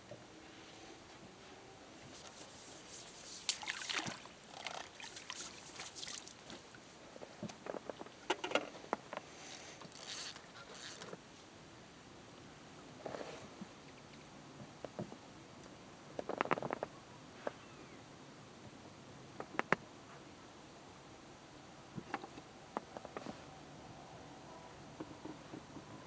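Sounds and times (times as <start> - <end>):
small water splashes: 2.2 - 6.8
fishing tackle rustling and clicking: 7.5 - 11.2.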